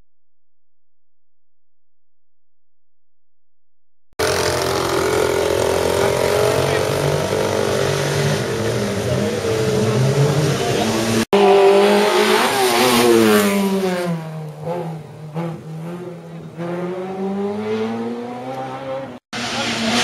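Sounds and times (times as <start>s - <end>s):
race car engine revving: 4.2s - 20.0s.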